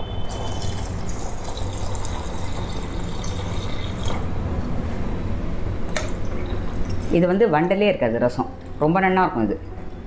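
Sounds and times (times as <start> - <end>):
liquid pouring into boiling pot: 0.2 - 4.3.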